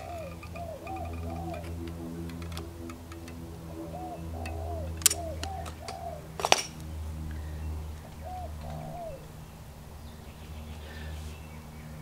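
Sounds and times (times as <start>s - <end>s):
bird calling: 0.0s - 11.6s
steady low hum: 0.0s - 12.0s
caulking gun clicks: 4.4s - 6.9s.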